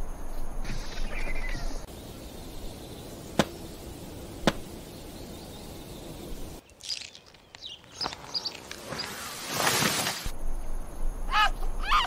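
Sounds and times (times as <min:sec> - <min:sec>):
steady background hiss: 0:00.1 - 0:06.7
high bird chirps: 0:04.8 - 0:09.3.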